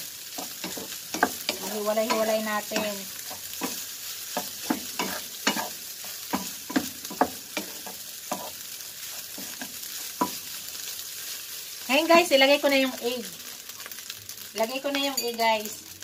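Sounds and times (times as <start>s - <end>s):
food sizzling in pan: 0.0s - 16.0s
spatula scraping frying pan: 0.3s - 11.5s.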